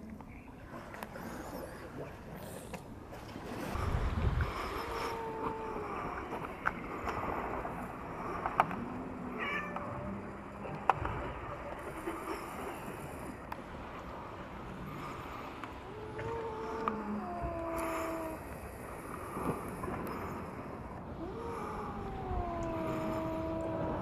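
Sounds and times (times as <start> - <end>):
cats yowling: 9.4 - 10.1, 15.8 - 18.5, 21.2 - 24.0.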